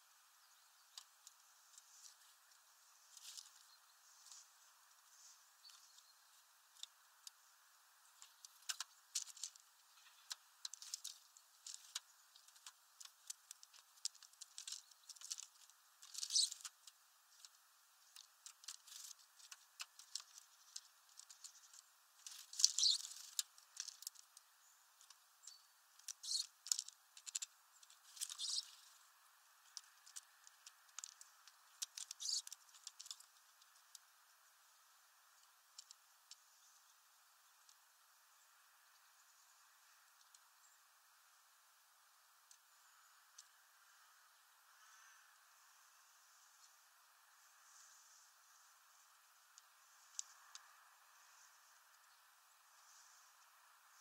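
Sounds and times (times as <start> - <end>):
birds pecking seeds: 0.0 - 54.0.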